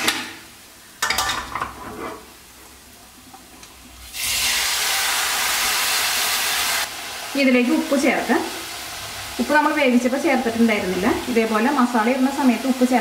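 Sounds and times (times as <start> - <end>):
loud sizzling in a pan: 0.0 - 13.0
metal pot scraping a pan: 1.1 - 2.4.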